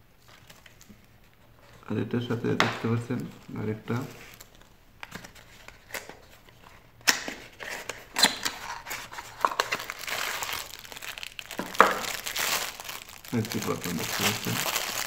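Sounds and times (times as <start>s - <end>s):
plastic bag crinkling: 3.1s - 5.7s, 8.5s - 15.0s.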